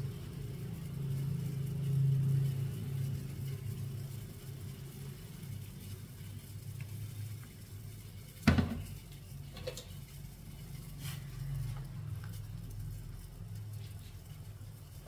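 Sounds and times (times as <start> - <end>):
metal utensils clanking on pot: 8.4 - 11.3.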